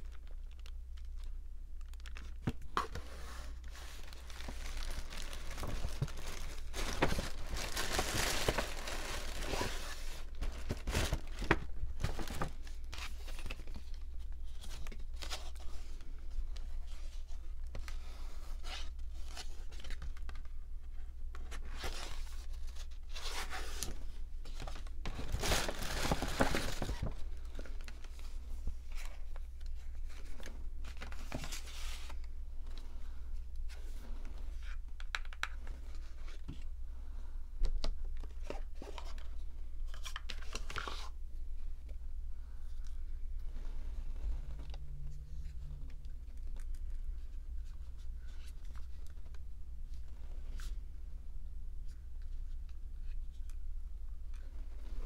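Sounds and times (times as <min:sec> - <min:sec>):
paper rustling and crinkling: 0:00.0 - 0:36.7, 0:37.6 - 0:41.2.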